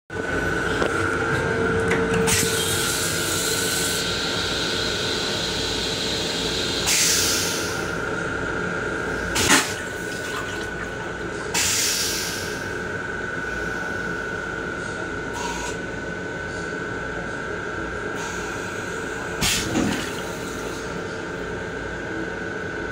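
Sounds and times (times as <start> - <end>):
train hum: 0.1 - 8.3
train toilet flushing: 1.9 - 7.9, 9.3 - 12.6, 19.4 - 20.8.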